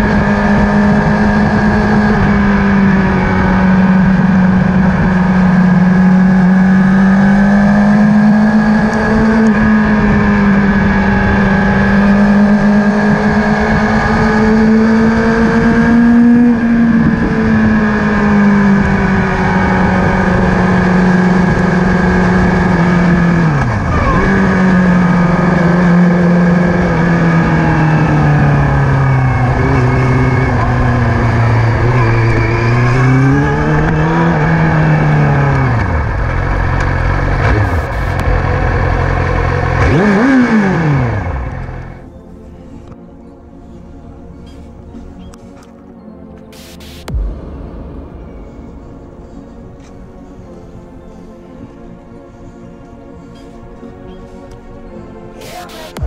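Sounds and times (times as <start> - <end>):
motorcycle engine running: 0.0 - 42.1, 46.5 - 51.3, 55.4 - 56.0
rush of wind noise: 8.6 - 24.8.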